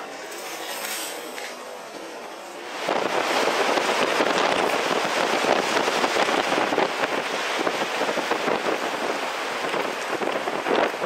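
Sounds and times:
storm wind buffeting microphone: 2.6s - 11.0s.

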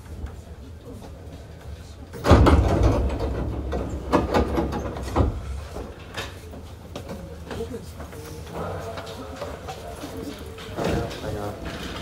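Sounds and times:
train doors loud clunk: 2.1s - 6.4s
smaller clunks and rattles: 2.2s - 6.4s.

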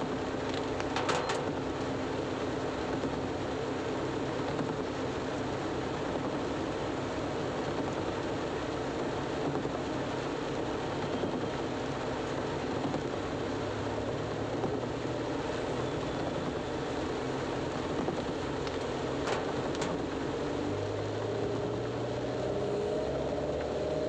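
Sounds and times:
rain and tyres on wet road: 0.0s - 24.0s
car engine humming: 13.4s - 24.0s.

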